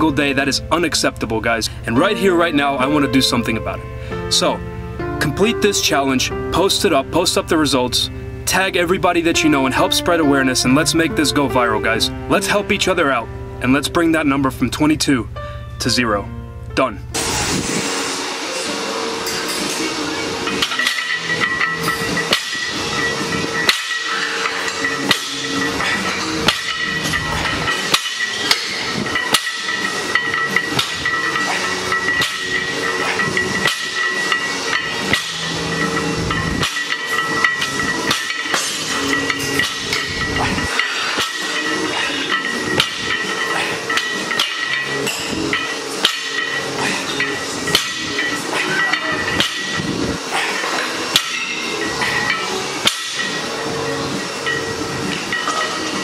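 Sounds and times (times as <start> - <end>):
steady background noise: 6.3 - 56.0
steady high-pitched whine: 12.1 - 56.0
weight plates clanking: 17.2 - 56.0.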